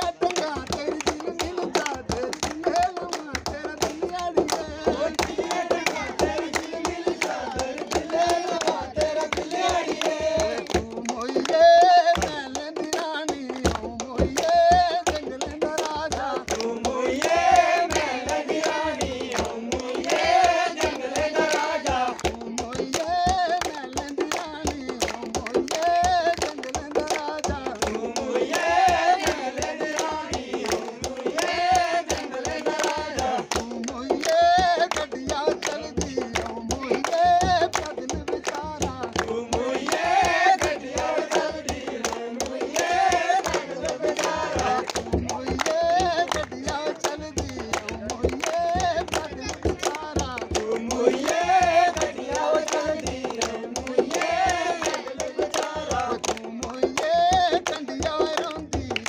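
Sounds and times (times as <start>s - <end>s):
hand clapping: 0.0s - 59.0s
men singing folk song: 0.0s - 59.0s.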